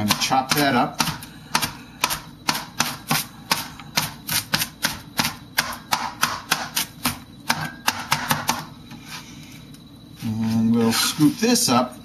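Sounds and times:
cleaver chopping on cutting board: 0:00.0 - 0:08.7.

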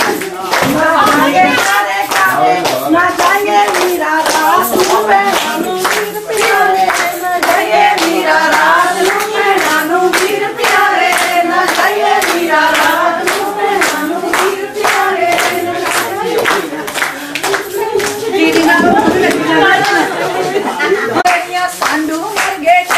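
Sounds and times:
group clapping hands: 0:00.0 - 0:22.9
women singing: 0:00.0 - 0:22.9.

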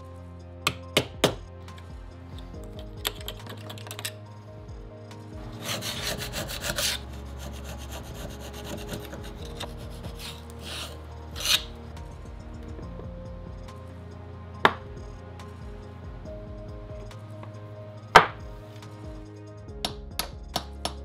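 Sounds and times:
background music: 0:00.0 - 0:21.0
steel tool scraping metal: 0:05.6 - 0:11.8.

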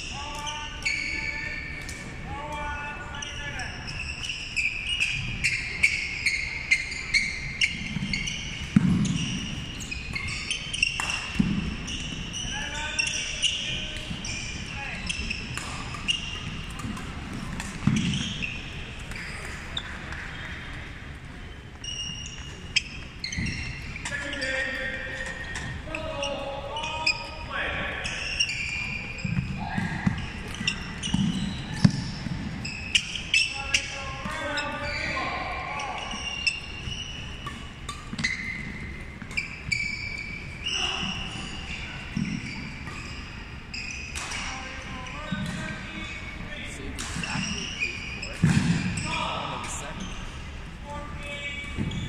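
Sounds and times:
sneakers squeaking on floor: 0:00.0 - 0:52.0
racket hitting shuttlecock: 0:08.0 - 0:11.8, 0:15.1 - 0:20.3, 0:44.0 - 0:44.5, 0:48.2 - 0:49.0.

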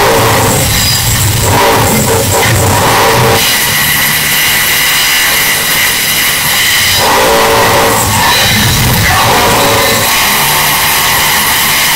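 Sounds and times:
high-pitched mechanical whine: 0:00.0 - 0:11.9
music: 0:00.0 - 0:11.9.

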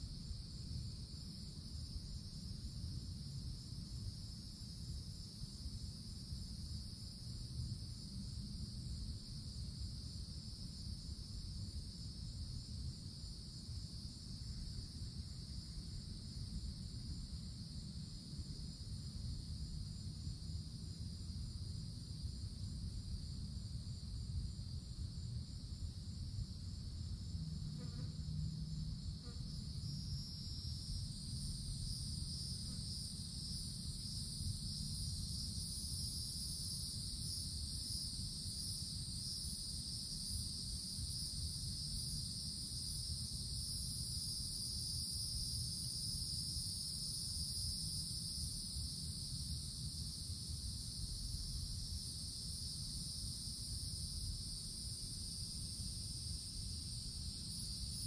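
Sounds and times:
cicadas buzzing: 0:27.3 - 0:58.0.

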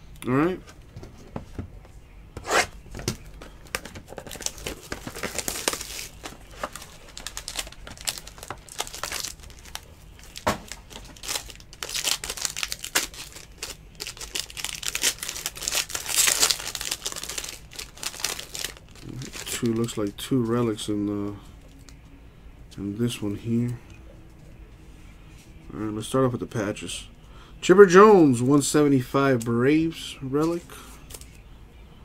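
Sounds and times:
foil wrapper crinkling and tearing: 0:03.4 - 0:20.1.

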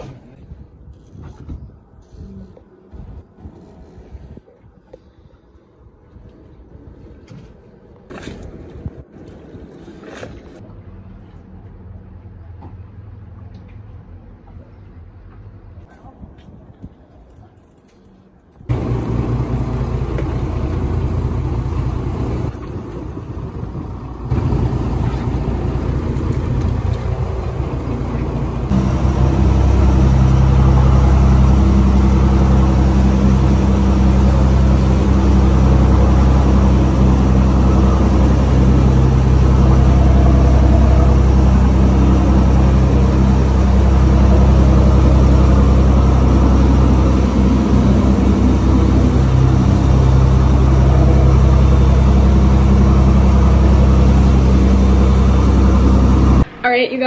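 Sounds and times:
boat engine droning: 0:18.7 - 0:56.8
rushing noise: 0:18.7 - 0:57.0.

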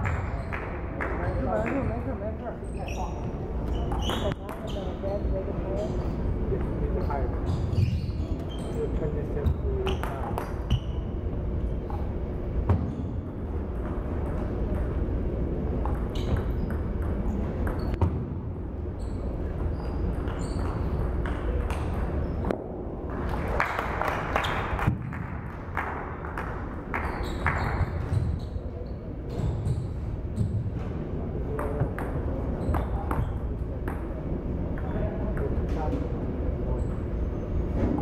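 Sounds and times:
steady low hum: 0:00.0 - 0:38.0
table tennis ball hits: 0:15.8 - 0:18.3.

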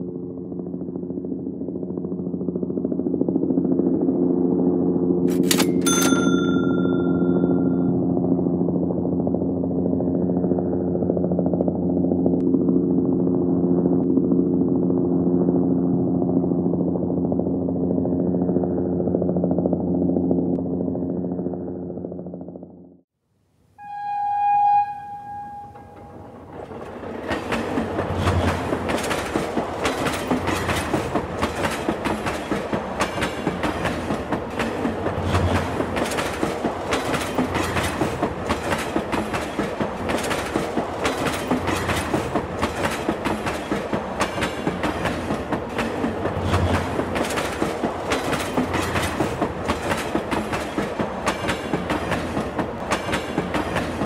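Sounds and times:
short high tone: 0:05.6 - 0:07.9, 0:23.8 - 0:26.2.

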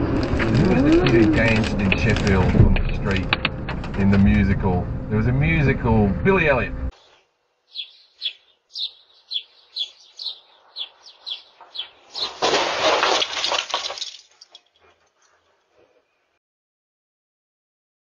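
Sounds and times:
car collision crunch: 0:00.0 - 0:04.2, 0:11.5 - 0:15.0
small bird chirping: 0:07.0 - 0:12.4.

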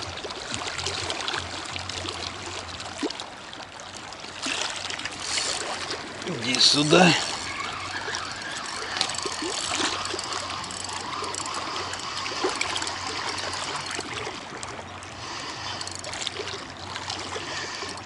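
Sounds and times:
small waves lapping: 0:00.0 - 0:18.0
fishing reel winding: 0:05.1 - 0:14.4, 0:15.3 - 0:18.0.

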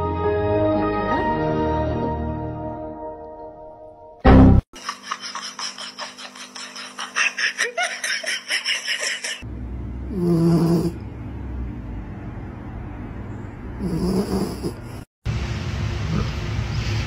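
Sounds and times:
pet snoring: 0:10.1 - 0:11.0, 0:13.8 - 0:15.1.

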